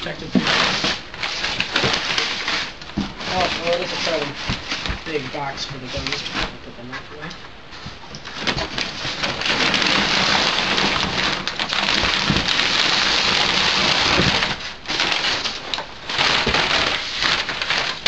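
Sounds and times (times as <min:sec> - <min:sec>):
packing paper crinkling: 0:00.0 - 0:18.0.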